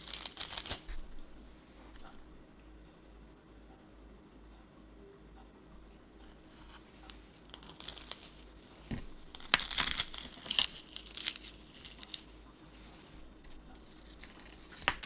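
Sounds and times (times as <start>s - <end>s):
mesh scrubber pad crinkling: 7.1s - 15.0s.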